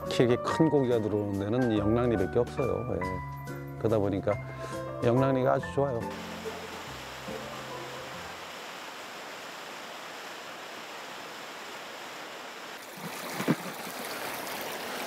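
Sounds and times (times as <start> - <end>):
seawater foaming over rocks: 6.1 - 15.0.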